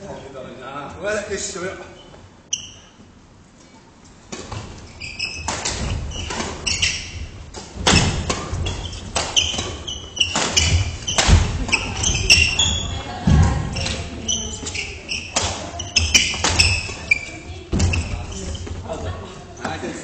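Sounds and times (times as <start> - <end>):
sneakers squeaking on wooden floor: 1.9 - 19.7
thudding footfalls: 5.4 - 19.2
racket striking shuttlecock: 7.5 - 12.6.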